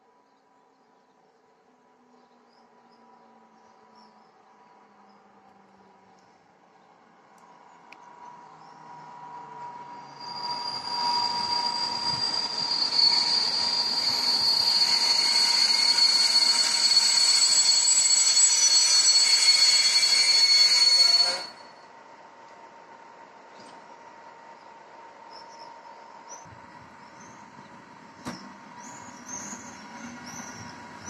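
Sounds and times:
train rumble: 3.0 - 31.0
train brakes squealing: 8.2 - 21.9, 28.2 - 31.0.

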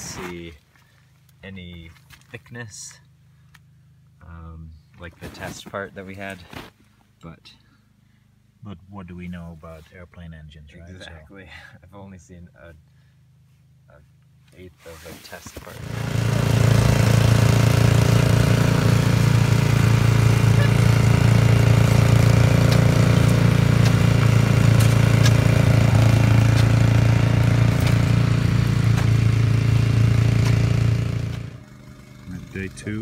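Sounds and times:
hot-air heater droning: 15.7 - 33.0.

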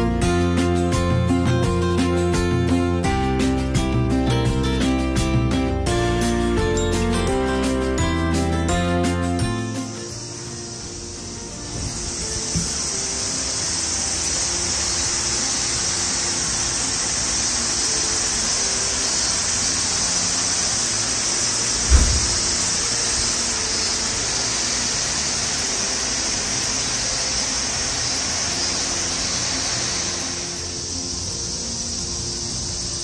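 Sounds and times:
water rushing: 10.8 - 31.4
low thump: 21.8 - 22.8.

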